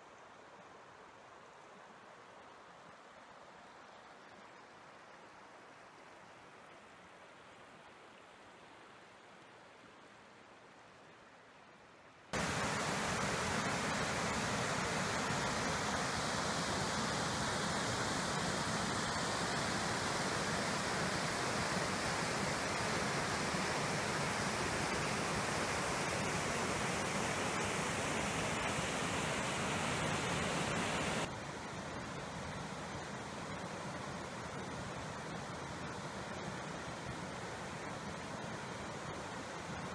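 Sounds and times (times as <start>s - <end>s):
faintly flowing water: 0.0s - 39.9s
river rapids roaring: 12.4s - 31.3s.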